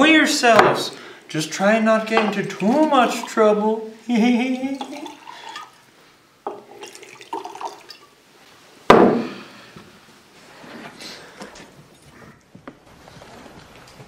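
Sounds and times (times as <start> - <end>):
liquid pouring into glass jars: 2.1 - 8.2
loud knock: 8.9 - 9.3.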